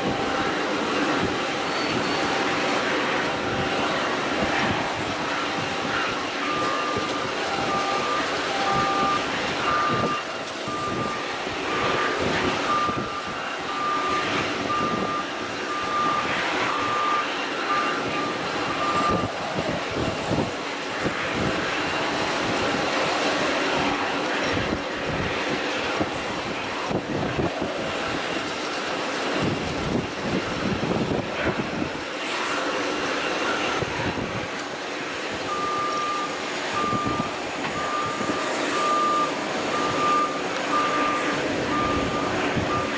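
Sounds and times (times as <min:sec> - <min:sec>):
reversing beeper: 0:00.0 - 0:19.4, 0:33.2 - 0:34.0, 0:35.4 - 0:42.9
jet engines rushing: 0:00.0 - 0:42.9.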